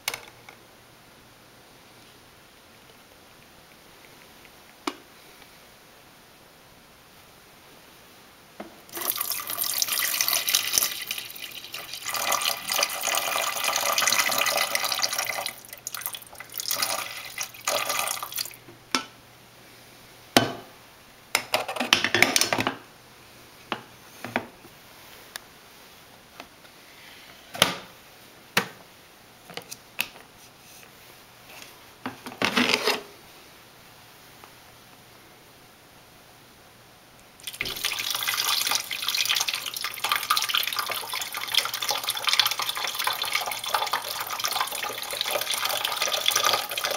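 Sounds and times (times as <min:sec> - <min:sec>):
water pouring into reservoir: 0:08.9 - 0:18.6, 0:37.4 - 0:46.9.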